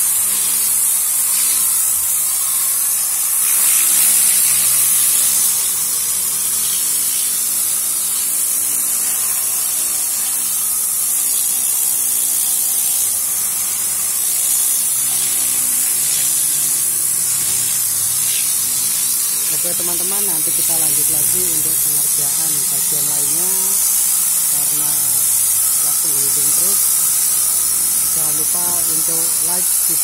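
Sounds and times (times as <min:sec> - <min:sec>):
high-pitched air hiss: 0:14.2 - 0:30.0.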